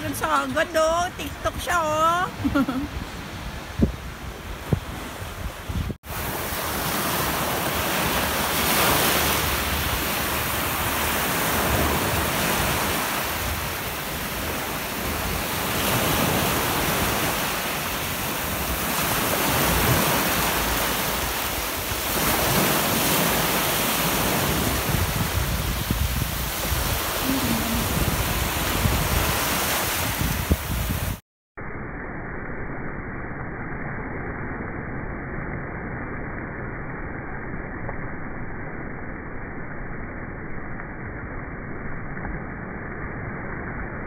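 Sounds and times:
wind buffeting microphone: 0.0 - 6.4, 24.1 - 31.2
surf breaking on sandy shore: 0.0 - 31.2.

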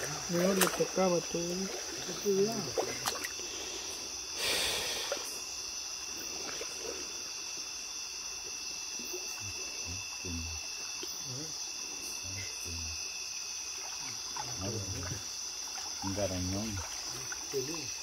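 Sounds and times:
water splash: 0.0 - 3.4, 13.7 - 18.0
night insects chirring: 0.0 - 18.0.

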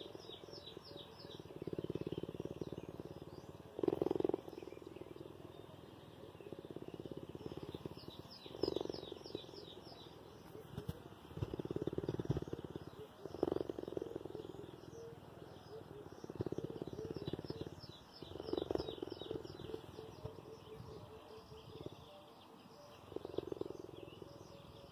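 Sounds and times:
birds chirping: 0.0 - 24.9
cheetah purring: 0.0 - 24.9.

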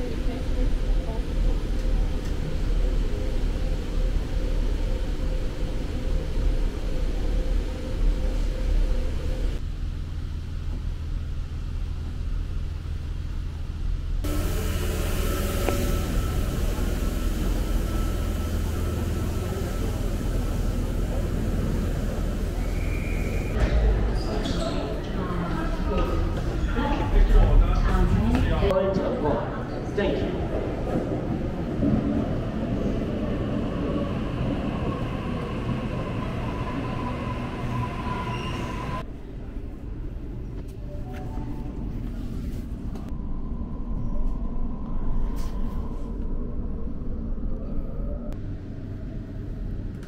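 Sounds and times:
train rumbling: 0.0 - 50.0
faint steady whine: 1.7 - 23.6.

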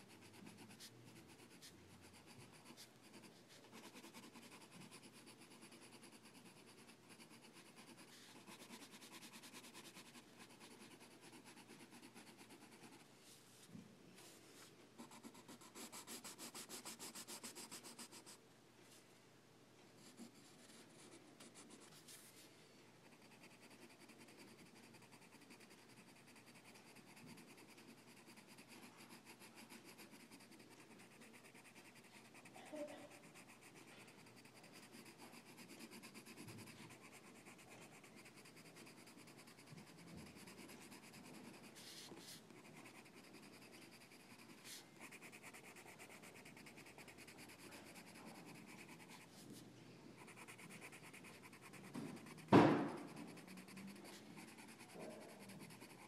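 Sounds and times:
faint scratching and rubbing: 20.0 - 56.0.

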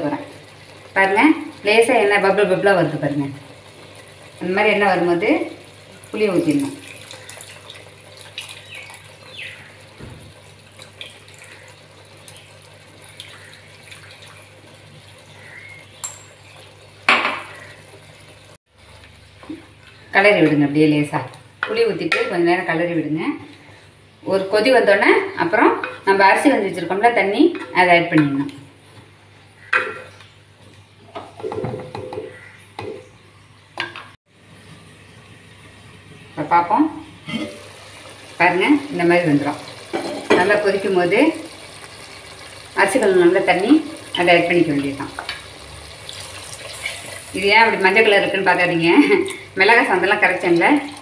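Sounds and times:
liquid trickling into curry: 5.7 - 16.8, 45.3 - 47.4.

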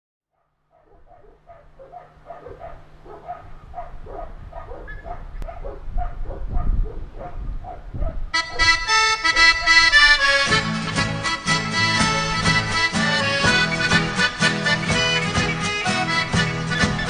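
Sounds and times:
animal calling: 0.7 - 6.4, 8.4 - 10.5, 11.4 - 17.0
accordion music: 8.4 - 17.0.

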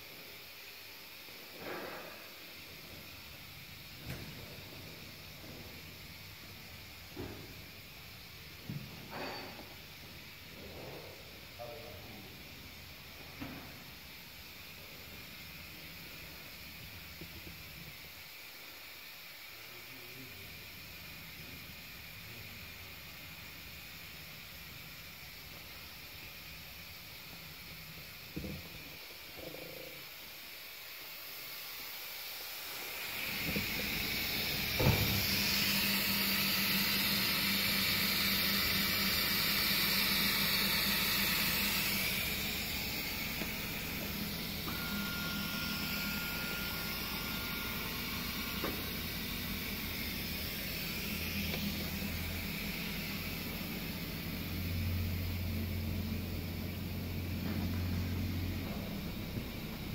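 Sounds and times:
press drive humming: 32.9 - 59.9
deeper hum: 33.3 - 59.9.

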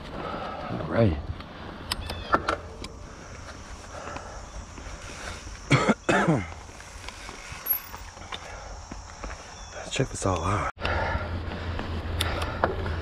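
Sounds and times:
person coughing: 5.7 - 6.6.

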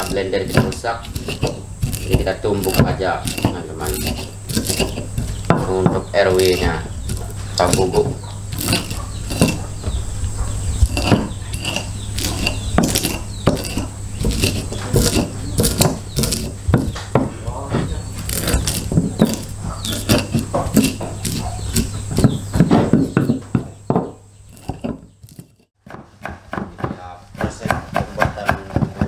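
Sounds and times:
pestle knocking in mortar: 0.0 - 10.0, 10.8 - 29.0
steady low hum: 0.0 - 29.0.

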